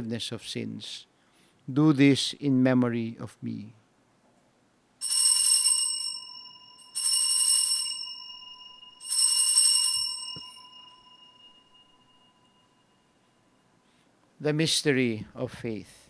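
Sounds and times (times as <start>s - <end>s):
altar bells jingling: 5.0s - 13.6s.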